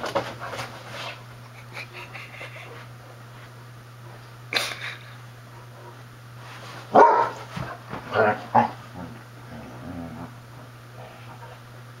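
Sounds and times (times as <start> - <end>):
dogs barking: 6.9 - 7.4.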